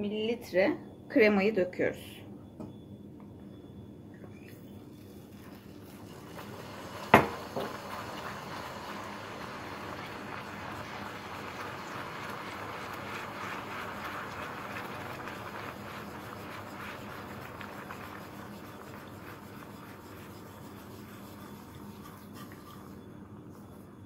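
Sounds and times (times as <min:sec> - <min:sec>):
whisk scraping metal pan: 0:19.1 - 0:23.1.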